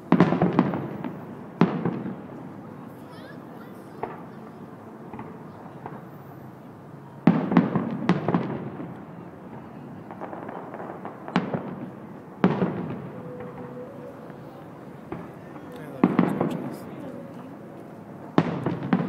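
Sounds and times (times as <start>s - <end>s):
fireworks bangs: 0.0s - 19.0s.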